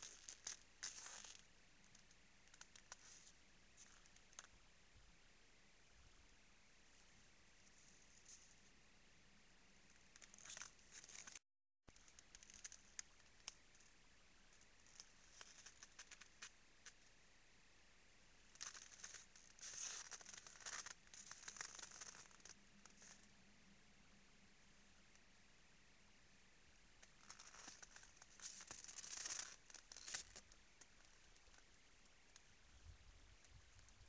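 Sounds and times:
crunching footsteps in frozen snow: 0.0s - 1.5s, 18.6s - 23.3s, 27.1s - 31.7s.

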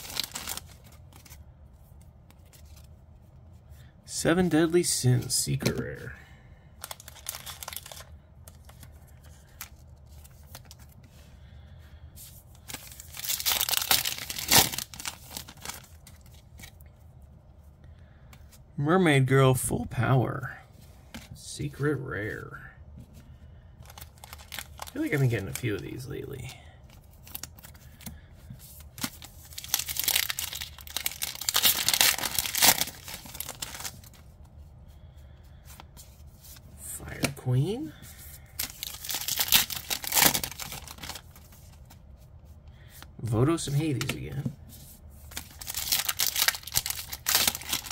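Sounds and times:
foil pack crinkling: 0.0s - 1.4s, 6.8s - 10.9s, 12.6s - 16.8s, 23.8s - 34.2s, 38.4s - 41.8s, 45.3s - 47.9s
foil pack tearing: 29.5s - 33.9s, 38.6s - 41.2s, 45.4s - 47.9s.

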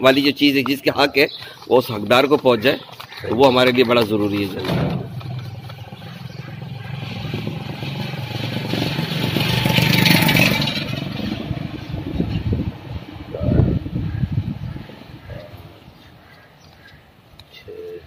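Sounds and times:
vehicle engine passing: 4.6s - 15.9s.

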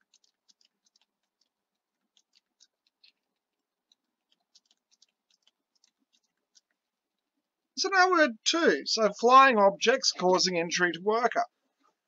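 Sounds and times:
mouse and keyboard clicking: 0.0s - 6.8s.

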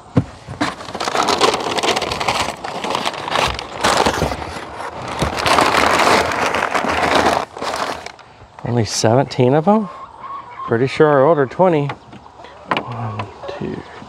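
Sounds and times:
packing paper rustling and crackling: 0.4s - 8.4s.

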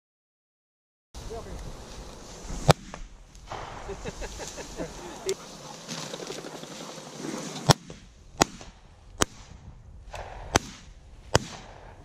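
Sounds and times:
rustle through dry grass: 1.2s - 9.5s.

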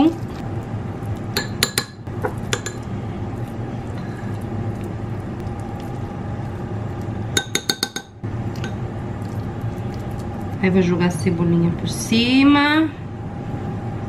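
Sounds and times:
steady low hum: 0.0s - 14.0s
spoon clinking on ceramic bowl: 1.4s - 2.9s, 7.4s - 8.8s.

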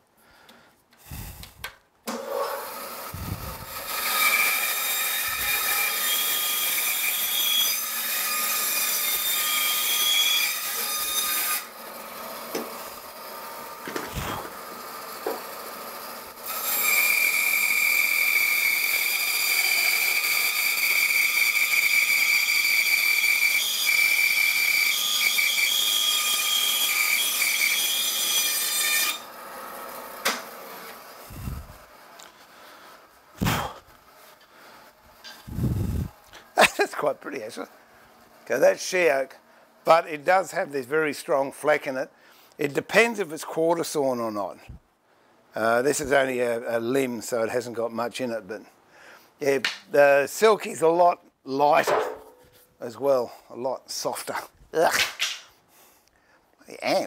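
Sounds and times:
bandsaw cutting wood: 2.1s - 32.8s, 33.4s - 37.7s.

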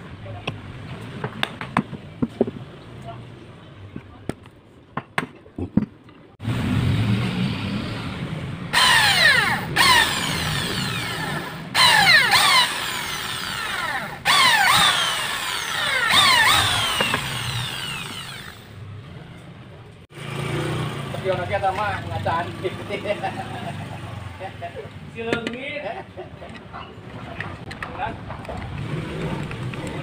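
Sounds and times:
electric drill boring into wood: 8.7s - 18.8s.

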